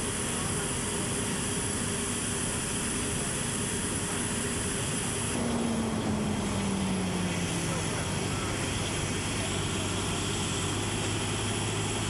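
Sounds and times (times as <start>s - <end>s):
machinery noise: 0.0s - 12.0s
low drone: 5.2s - 12.0s.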